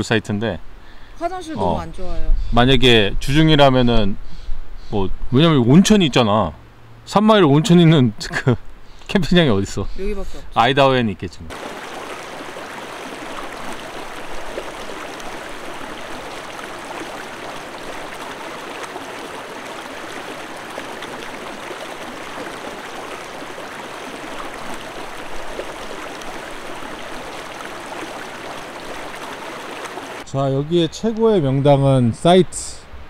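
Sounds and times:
creek water rushing: 11.5 - 30.3.

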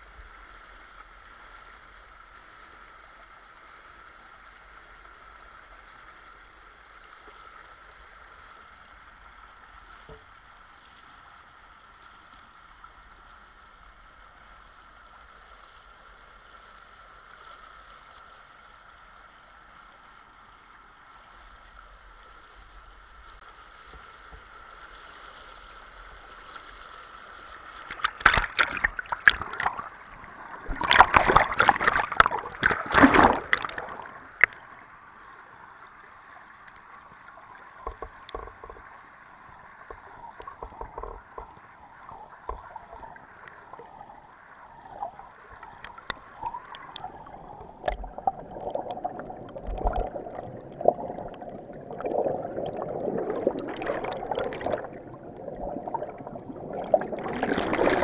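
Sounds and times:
water bubbling and gurgling: 27.4 - 35.3, 36.4 - 58.0
small clicks underwater: 27.5 - 34.8, 36.6 - 44.1, 44.8 - 58.0
underwater splashing: 27.5 - 35.0, 36.6 - 58.0.

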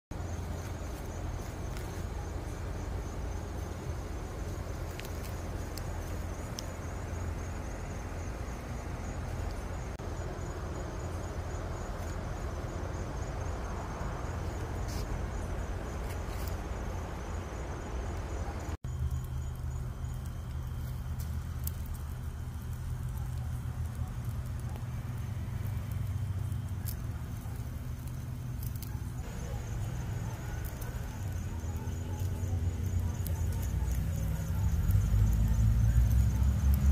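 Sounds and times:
coals crackling and popping: 0.1 - 36.9
crickets chirping: 0.1 - 36.9
meat sizzling on grill: 18.9 - 36.9.

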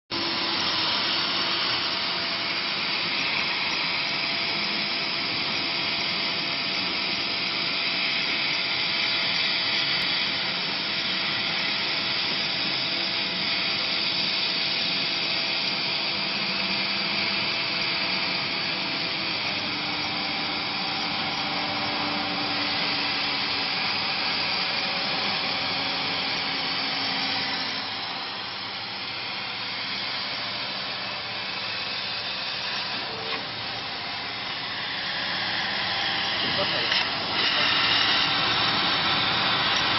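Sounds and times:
hiss of air and fans: 34.3 - 39.9.

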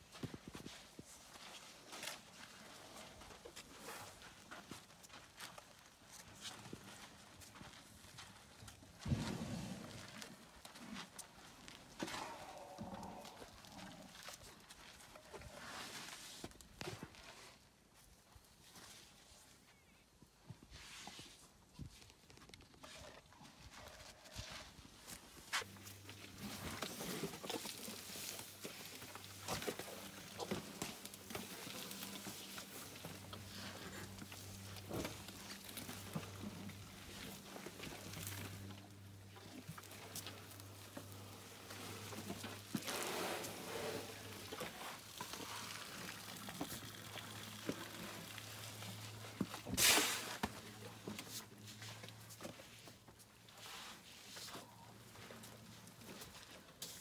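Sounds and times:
elephants moving in mud: 0.0 - 17.7, 22.7 - 57.0
elephants squelching in mud: 25.6 - 50.6.

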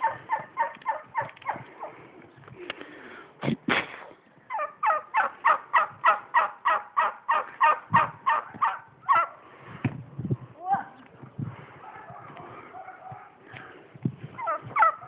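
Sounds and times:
fowl calling: 0.0 - 2.0, 4.5 - 9.4, 14.4 - 15.0.

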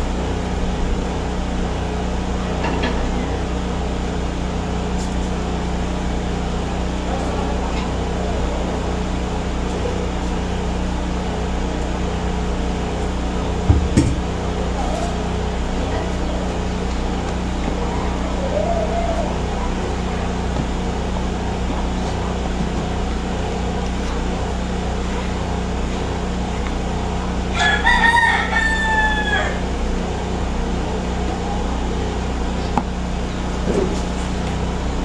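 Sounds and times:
low background hum: 0.0 - 35.0
rooster crowing: 17.8 - 20.3, 27.5 - 29.8.

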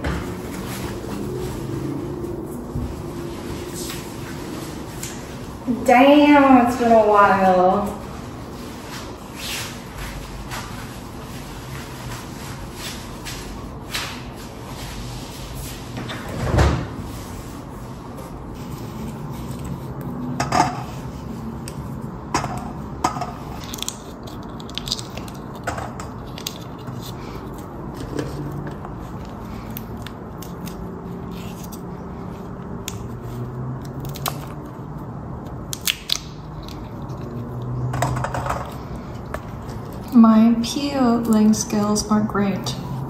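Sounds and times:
pea pods cracking: 23.6 - 25.6, 35.4 - 37.8.

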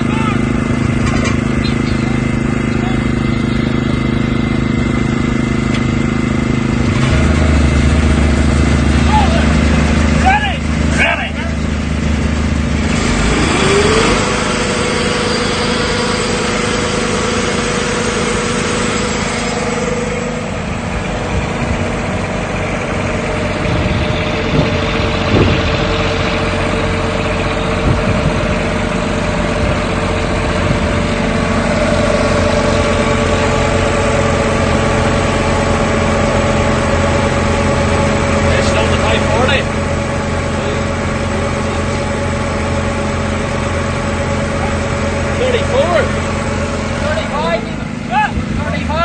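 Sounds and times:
tractor engine revving under load: 0.0 - 49.0.

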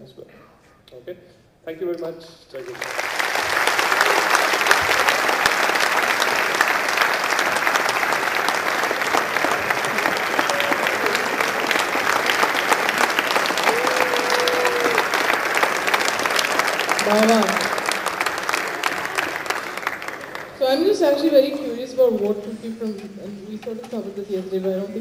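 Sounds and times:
audience applauding: 2.7 - 22.1.

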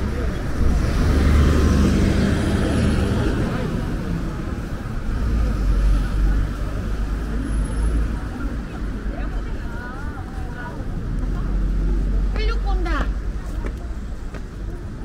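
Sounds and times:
vehicle passing by: 0.0 - 8.7
road traffic rumble: 0.0 - 15.0.

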